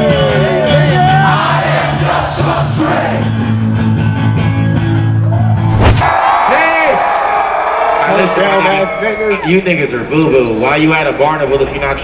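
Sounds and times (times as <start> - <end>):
sustained bass notes: 0.0 - 6.0
drums: 0.0 - 7.0
electric guitar: 3.2 - 5.7.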